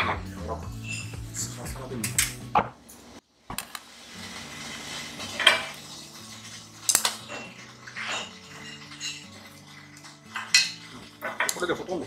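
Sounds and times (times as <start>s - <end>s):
metal cookware clattering: 4.3s - 12.0s.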